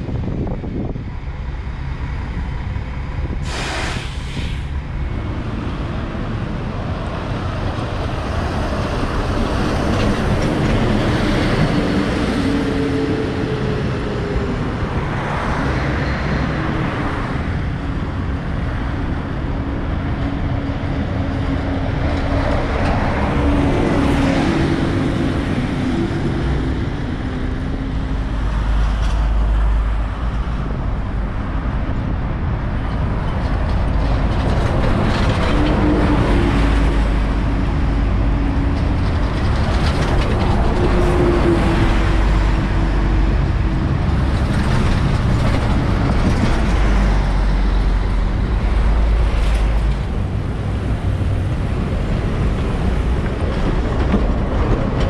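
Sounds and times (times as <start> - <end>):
buses and cars passing: 0.0 - 55.0
road and tyre noise: 0.0 - 55.0
short hiss: 3.4 - 4.7.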